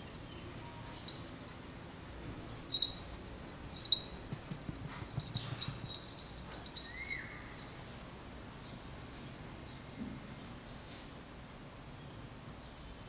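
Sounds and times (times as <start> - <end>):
hand rubbing cat fur: 2.3 - 6.8.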